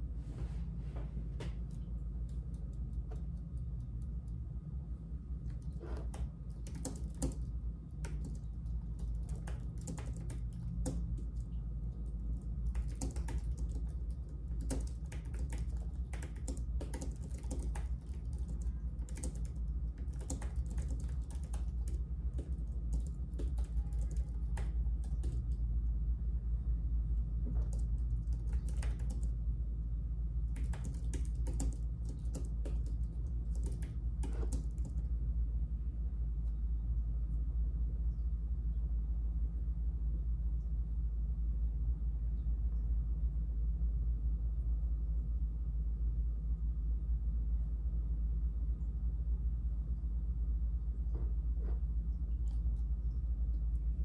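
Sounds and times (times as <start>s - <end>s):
low hum: 0.0s - 54.0s
keyboard typing: 5.5s - 25.6s, 27.5s - 29.4s, 30.5s - 35.0s.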